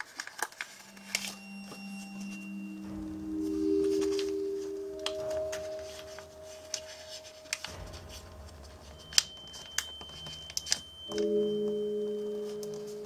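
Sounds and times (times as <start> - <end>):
paper creasing crackles: 0.0 - 0.9
soft background music: 0.7 - 13.0.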